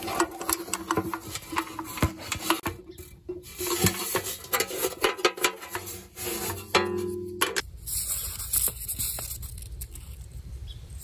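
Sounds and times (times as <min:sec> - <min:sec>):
things rubbing inside can: 0:00.0 - 0:07.2
metal latch and lid clanking: 0:00.0 - 0:07.6
metal scraping: 0:00.0 - 0:09.2.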